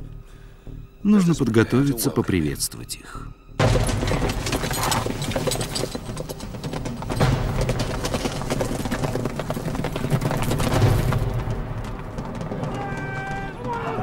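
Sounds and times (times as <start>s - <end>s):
horses galloping hoofbeats: 3.6s - 14.0s.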